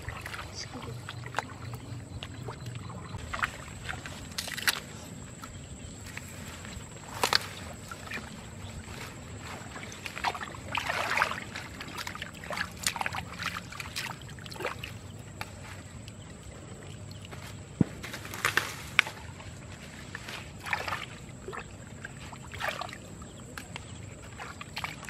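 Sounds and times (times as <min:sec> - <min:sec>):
hands sloshing in muddy water: 0:00.0 - 0:25.0
water splashes: 0:00.0 - 0:25.0.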